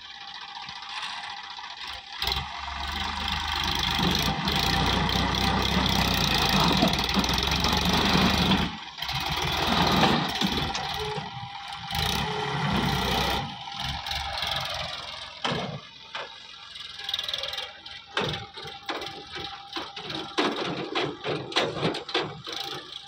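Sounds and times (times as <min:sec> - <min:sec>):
tractor diesel engine running: 0:00.0 - 0:23.0
trailer knocking and rattling: 0:18.0 - 0:23.0.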